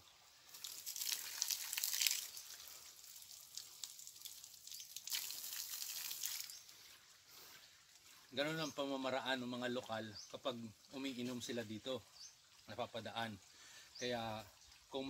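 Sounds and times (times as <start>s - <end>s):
water jet splashing on rocks: 0.5s - 6.7s.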